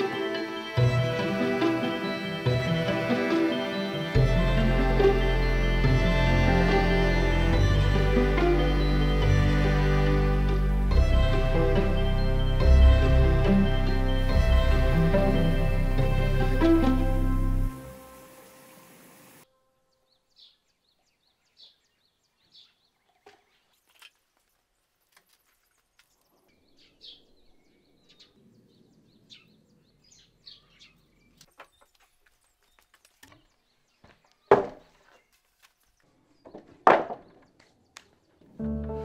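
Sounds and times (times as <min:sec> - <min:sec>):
birds chirping: 0:00.0 - 0:39.0
lumber rustling and knocking: 0:31.5 - 0:35.8
board thunking on wooden workbench: 0:34.5 - 0:34.9, 0:36.5 - 0:37.4.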